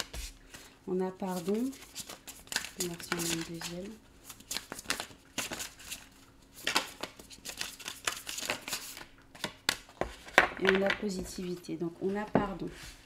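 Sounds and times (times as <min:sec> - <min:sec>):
cards being shuffled: 0:00.0 - 0:00.7, 0:01.3 - 0:10.8.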